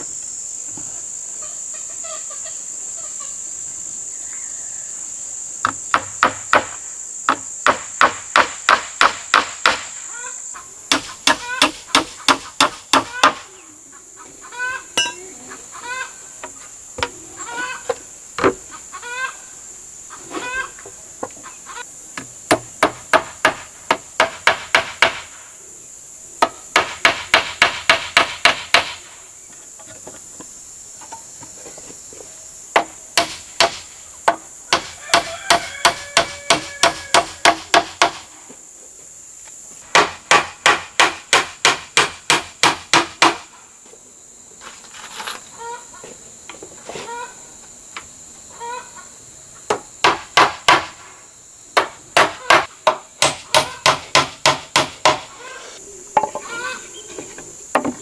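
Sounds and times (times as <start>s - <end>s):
hammer nailing wood: 5.7s - 9.8s, 22.5s - 25.2s, 26.4s - 29.0s, 39.9s - 43.4s, 50.0s - 50.9s, 51.8s - 55.3s.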